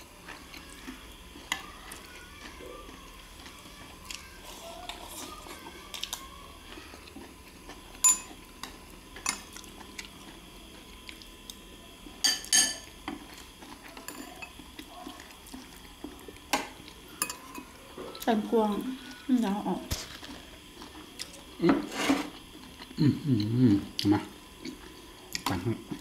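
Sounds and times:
spoons clinking on ceramic bowls: 8.0 - 8.3, 12.2 - 12.9, 17.2 - 17.7.

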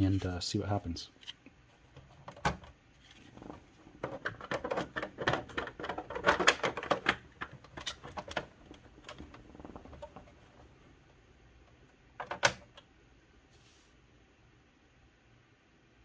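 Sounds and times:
plastic clicks and rattles: 3.4 - 10.6, 12.2 - 12.9.

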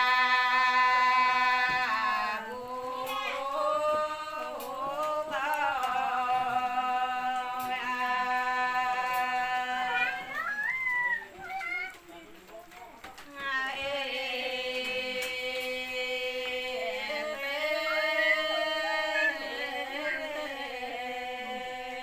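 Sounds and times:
women singing a chant: 0.0 - 10.7, 13.2 - 22.0.

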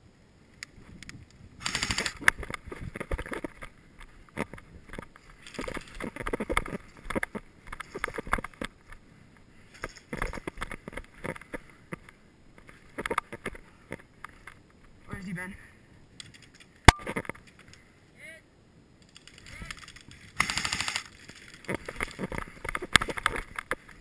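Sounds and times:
gear rustling and rattling: 1.6 - 8.9, 9.6 - 13.6, 19.0 - 24.0.

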